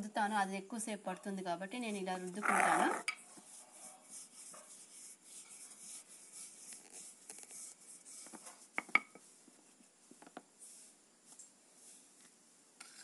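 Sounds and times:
rolling pin rubbing dough: 1.8 - 11.0.

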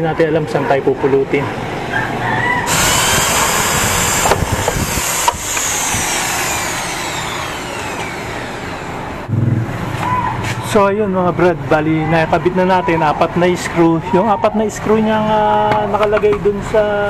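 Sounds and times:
electric drill boring into plastic: 2.7 - 9.3.

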